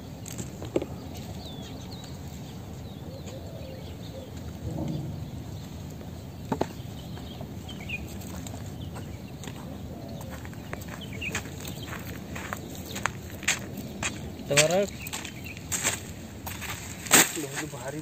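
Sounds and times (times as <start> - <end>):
sharp knocks: 4.6 - 5.4.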